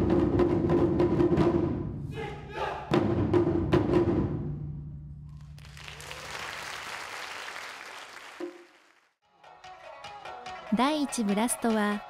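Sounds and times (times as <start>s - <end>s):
large drums struck: 0.0s - 2.1s, 2.9s - 5.1s
audience applauding: 5.5s - 9.2s.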